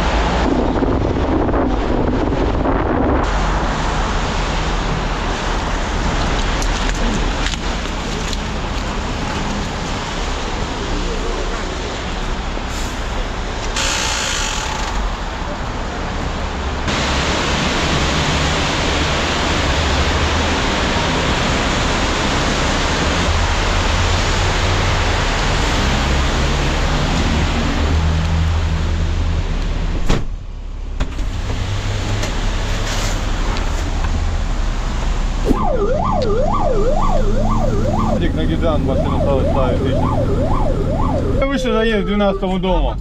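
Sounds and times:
fire engine engine and road noise: 0.0s - 43.0s
siren wailing: 35.5s - 43.0s.

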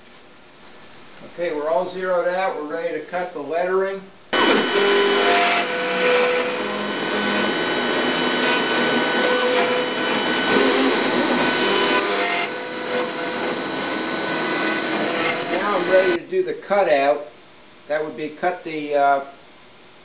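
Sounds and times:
router spindle whine: 4.4s - 16.2s.

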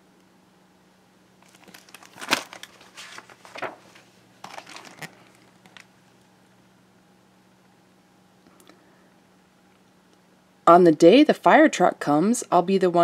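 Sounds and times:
paper crinkling and rustling: 1.4s - 5.9s.

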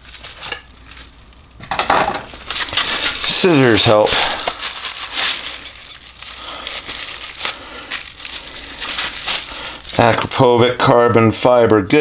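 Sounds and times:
bubble wrap crinkling: 0.0s - 10.6s.

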